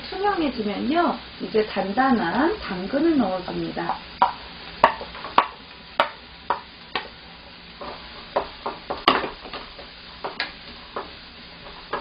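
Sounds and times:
wooden spatula knocking on a pan: 3.9s - 7.1s, 8.4s - 11.2s.

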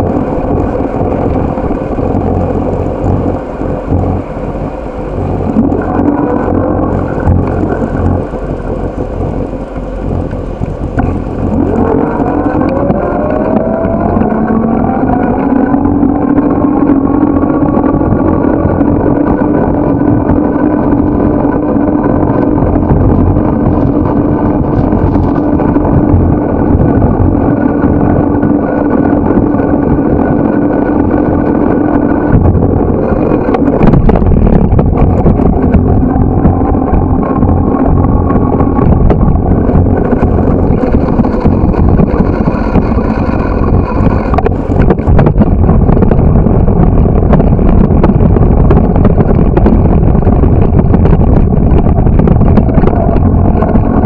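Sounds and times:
bicycle road noise rumble: 0.0s - 54.0s.

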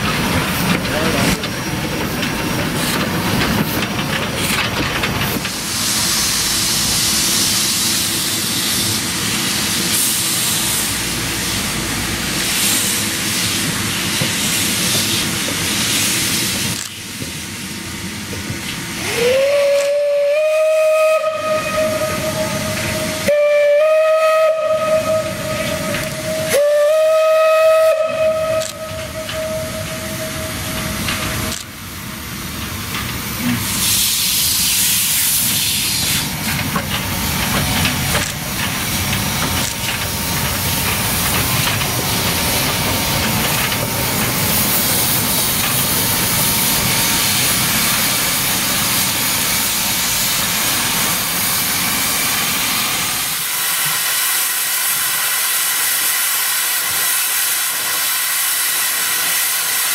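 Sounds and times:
loud hiss of steam: 0.0s - 59.9s
steam locomotive whistle: 19.0s - 31.6s.

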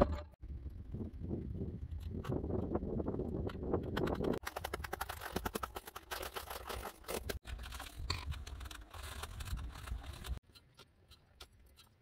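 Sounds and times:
ice chunks scraping and cracking: 4.2s - 10.4s.

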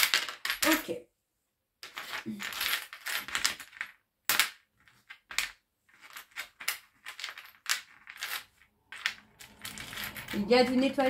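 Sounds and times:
metal charms scraping on tray: 5.9s - 11.0s.

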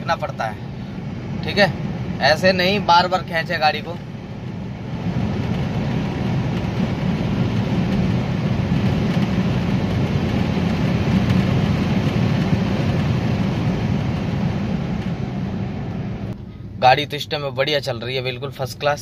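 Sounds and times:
car engine accelerating: 1.0s - 16.6s.

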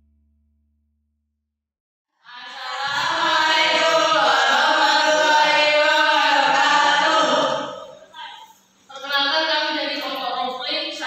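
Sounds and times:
boys chanting in unison: 2.3s - 8.1s.

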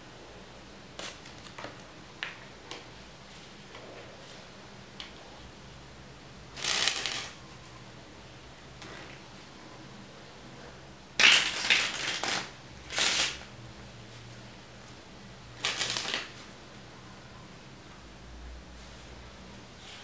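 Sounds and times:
playing cards riffle shuffling: 6.6s - 7.4s, 11.2s - 13.5s, 15.6s - 16.5s.

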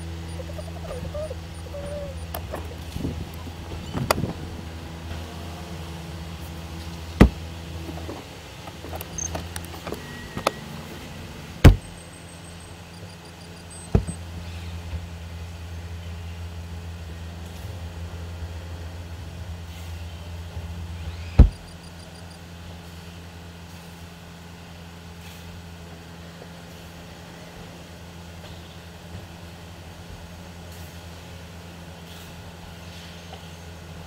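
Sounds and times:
car driving on highway drone: 0.0s - 23.2s.

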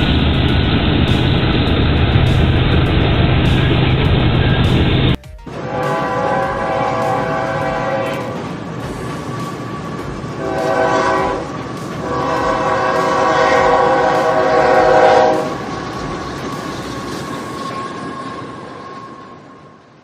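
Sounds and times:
train wheels rumbling on rails: 0.0s - 20.0s
locomotive horn blasts: 5.5s - 8.4s, 10.4s - 15.8s.

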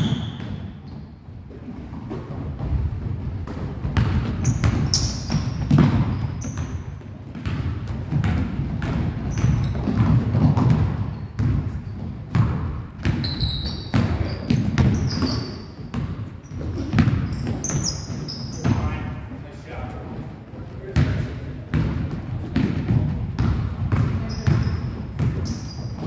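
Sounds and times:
sneaker squeaks: 0.0s - 1.2s, 4.0s - 7.6s, 9.2s - 19.2s, 23.9s - 26.0s
basketball bouncing on hardwood floor: 2.0s - 18.9s, 21.0s - 26.0s.

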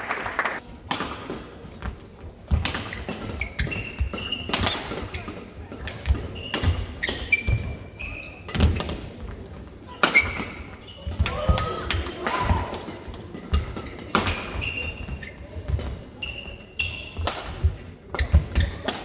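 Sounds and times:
shoes squeaking on court: 1.8s - 9.5s, 10.1s - 11.4s, 13.4s - 17.3s, 18.1s - 19.0s.

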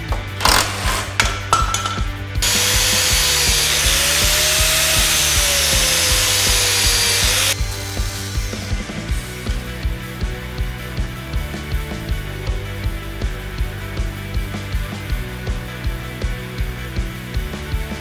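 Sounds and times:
metallic knocks: 0.2s - 2.2s
angle grinder cutting steel: 0.4s - 1.4s, 2.4s - 7.6s.

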